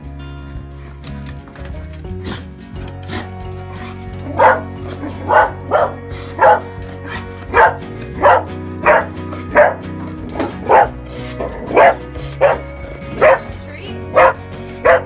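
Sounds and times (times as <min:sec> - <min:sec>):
dog barking: 0:04.3 - 0:06.7, 0:07.5 - 0:13.5, 0:14.1 - 0:15.0.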